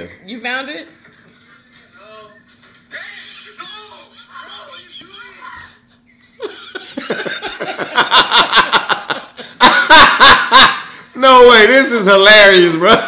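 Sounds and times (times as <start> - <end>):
man laughing hard: 6.2 - 11.1.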